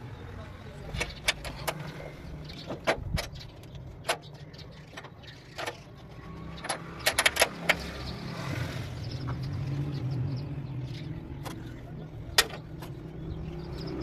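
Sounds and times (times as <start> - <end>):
sharp metallic clicks: 2.5 - 8.0.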